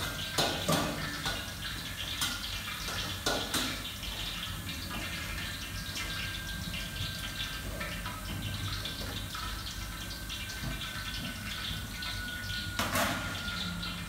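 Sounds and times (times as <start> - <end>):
water running and dripping: 0.0 - 14.0
utensils or dishes clinking: 10.5 - 14.0.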